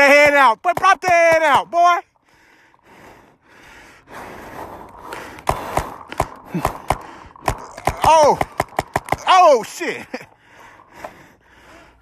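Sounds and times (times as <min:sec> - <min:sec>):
person breathing hard: 0:02.2 - 0:07.7, 0:10.2 - 0:12.0
sharp pops: 0:05.1 - 0:09.8.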